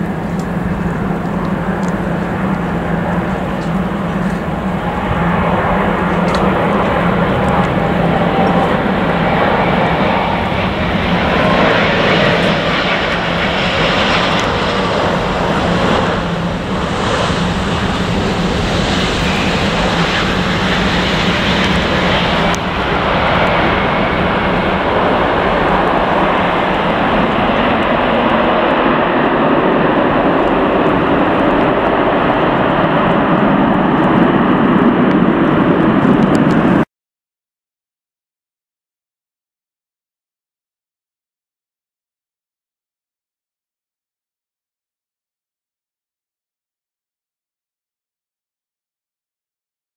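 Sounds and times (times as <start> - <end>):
jet airliner rumble and whine: 0.0 - 36.9.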